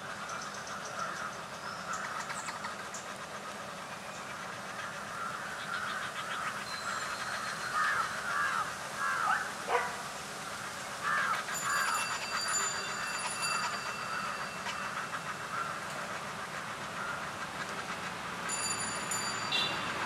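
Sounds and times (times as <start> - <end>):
birds chattering calls: 0.0 - 18.8
thin high steady tones: 6.3 - 9.2, 11.0 - 20.0.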